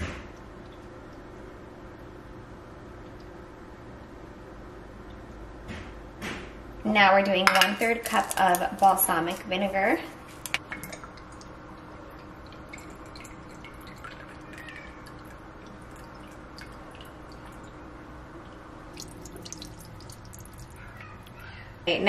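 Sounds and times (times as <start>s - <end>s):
liquid trickling into a cup: 10.6s - 21.4s.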